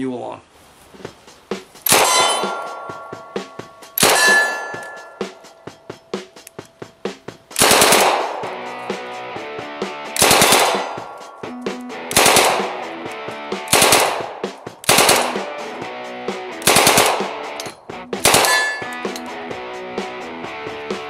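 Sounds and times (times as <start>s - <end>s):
rock guitar music: 1.1s - 21.0s
submachine gun bursts: 7.6s - 8.2s, 10.2s - 11.0s, 12.1s - 12.7s, 13.7s - 14.2s, 14.8s - 15.4s, 16.6s - 17.3s, 18.2s - 18.8s.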